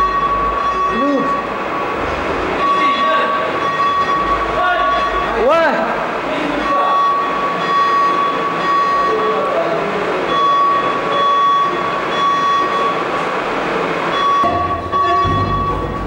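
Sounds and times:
fire alarm high tone: 0.0 - 1.6, 2.6 - 5.5, 6.6 - 9.5, 10.3 - 13.0, 14.1 - 16.0.

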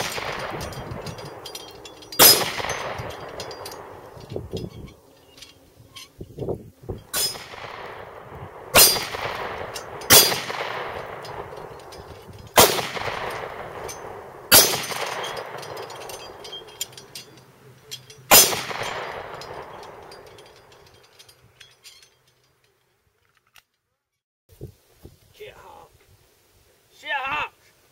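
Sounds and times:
pistol shots: 0.0 - 1.4, 2.2 - 4.1, 7.1 - 11.8, 12.6 - 15.7, 18.3 - 19.4
steel plate ringing: 0.0 - 22.8.

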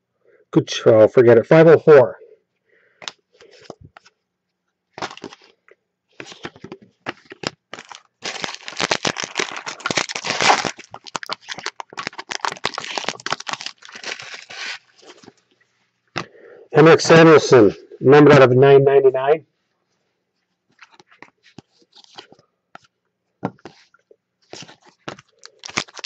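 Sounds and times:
cards clicking and rustling: 4.9 - 5.6, 6.2 - 15.4, 20.7 - 26.0
foil wrapper crinkling and tearing: 4.9 - 5.6, 6.2 - 15.4, 20.8 - 22.4, 24.5 - 26.0.

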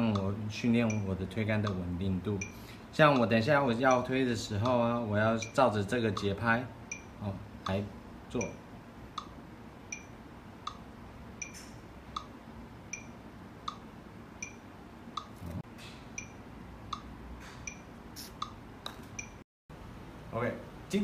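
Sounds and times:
metronome clicking: 11.4 - 12.3.

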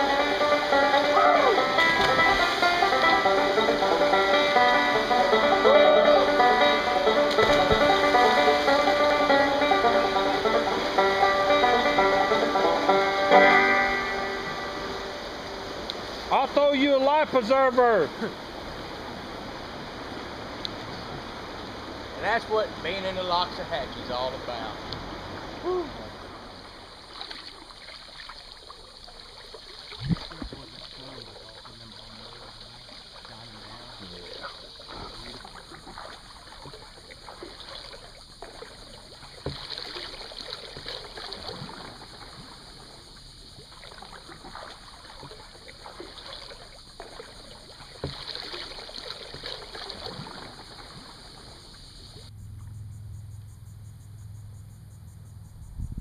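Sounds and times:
low steady hum: 0.0 - 27.6, 51.4 - 56.0
steady high hiss: 0.0 - 27.6
paddle splashing water: 0.0 - 52.3
sharp knocks: 7.2 - 9.0.

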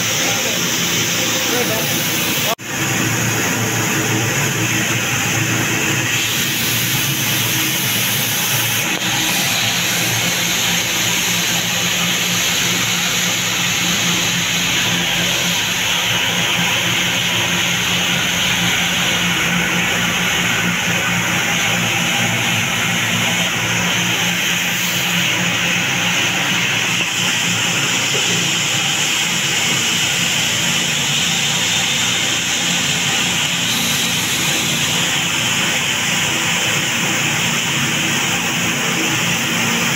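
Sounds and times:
grain cleaning machine shaking sieves: 0.0 - 39.9.

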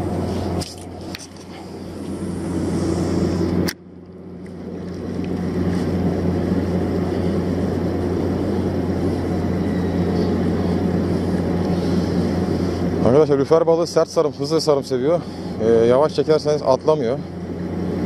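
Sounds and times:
rushing haze: 0.0 - 3.7, 5.1 - 13.3
low engine hum: 0.0 - 18.0.

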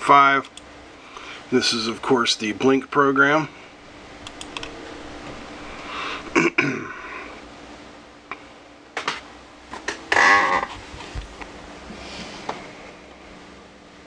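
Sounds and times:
man's throaty sounds: 6.1 - 7.3.

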